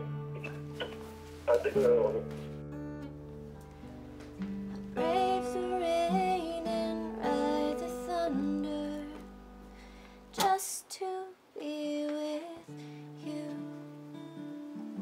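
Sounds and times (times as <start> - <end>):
acoustic guitar: 0.0 - 15.0
woman singing: 4.8 - 9.4, 10.3 - 14.0
loud breathy sound: 9.7 - 10.3.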